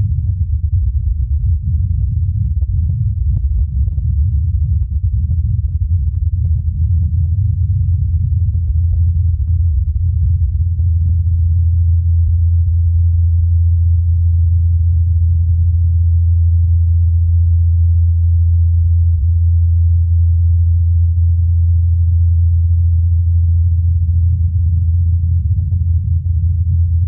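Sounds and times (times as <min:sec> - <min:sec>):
low hum of rotor blades: 0:00.0 - 0:13.2.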